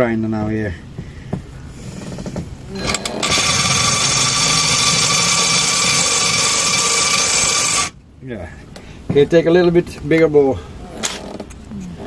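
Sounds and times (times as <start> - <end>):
cordless drill whining into metal: 2.1 - 8.0.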